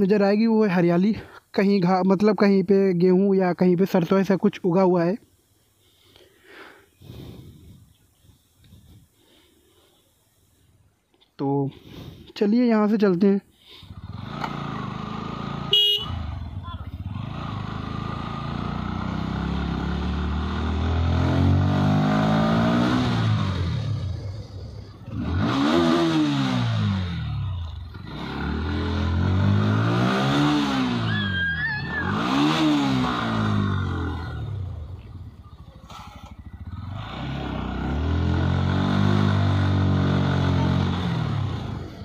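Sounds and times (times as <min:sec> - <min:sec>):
motorcycle engine revving: 0:13.8 - 0:42.0.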